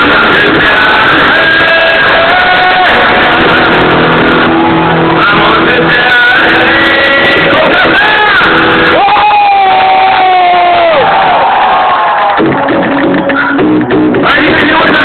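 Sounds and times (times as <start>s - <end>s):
singer holding gliding notes: 0.0s - 11.0s
live rock band playing: 0.0s - 15.0s
crowd shouting: 0.6s - 5.6s, 7.3s - 12.7s.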